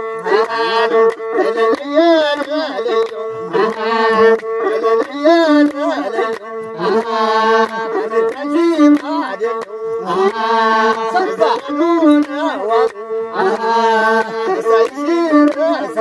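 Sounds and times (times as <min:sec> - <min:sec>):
bowed fiddle: 0:00.0 - 0:16.0
hand claps: 0:00.0 - 0:16.0
men singing: 0:00.0 - 0:16.0.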